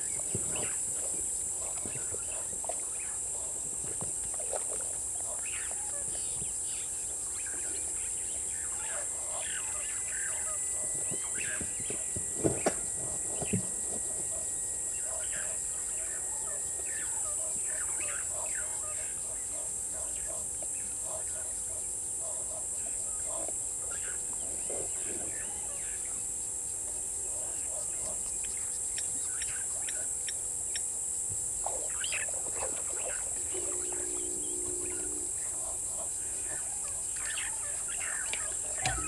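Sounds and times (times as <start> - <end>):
high-pitched insect drone: 0.0 - 39.0
brief low hum: 33.4 - 36.1.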